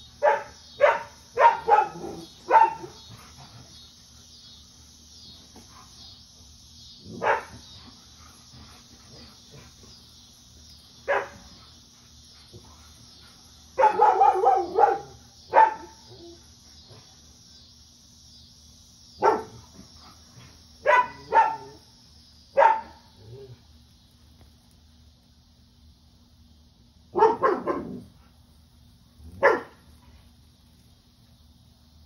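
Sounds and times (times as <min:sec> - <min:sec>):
cicada buzzing: 0:00.0 - 0:32.0
dog barking: 0:00.2 - 0:03.0, 0:07.1 - 0:07.6, 0:11.1 - 0:11.4, 0:13.8 - 0:16.0, 0:19.2 - 0:19.6, 0:20.8 - 0:21.8, 0:22.6 - 0:23.0, 0:27.1 - 0:28.0, 0:29.4 - 0:29.8.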